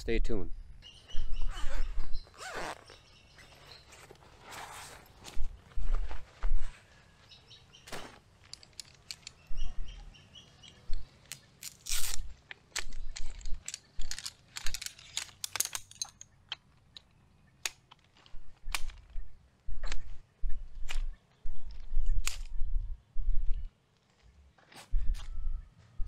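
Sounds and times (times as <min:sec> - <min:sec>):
nylon bag rustling: 0:02.4 - 0:06.4, 0:07.8 - 0:09.0
pole frame clicking and clacking: 0:10.6 - 0:19.2.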